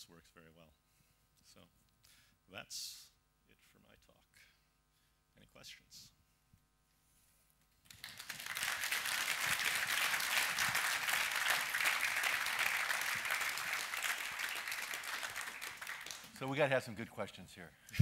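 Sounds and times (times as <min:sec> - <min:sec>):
audience applauding: 0:07.9 - 0:16.5.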